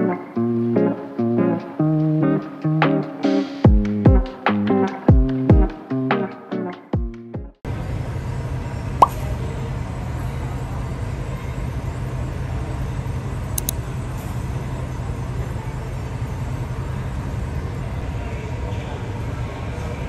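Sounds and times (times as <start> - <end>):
low rumble of airport noise: 7.7 - 20.0.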